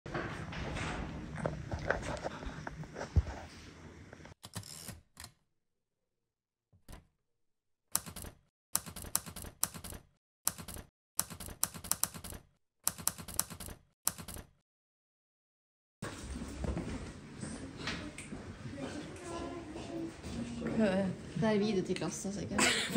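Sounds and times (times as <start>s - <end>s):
typewriter key clacks: 8.0s - 14.5s.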